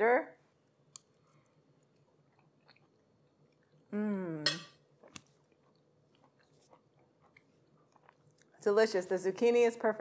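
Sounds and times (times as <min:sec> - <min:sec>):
woman chewing food: 0:00.8 - 0:03.9, 0:04.8 - 0:08.6
woman humming mmm: 0:03.9 - 0:04.6.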